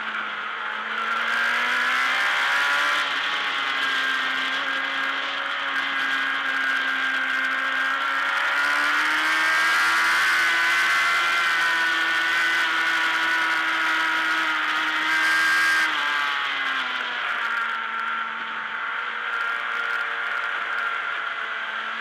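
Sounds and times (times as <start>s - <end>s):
motorcycle engine at high revs: 0.0s - 22.0s.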